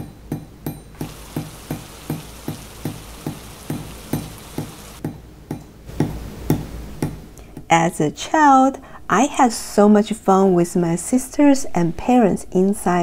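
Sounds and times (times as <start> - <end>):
heavy rain: 1.0 - 5.0.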